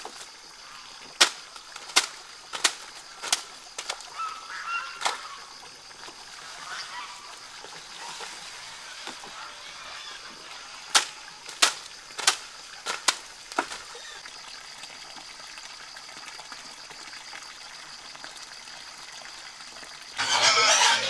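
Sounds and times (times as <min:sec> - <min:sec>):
splashes on pond water: 0:00.0 - 0:20.2
outdoor background: 0:00.0 - 0:21.0.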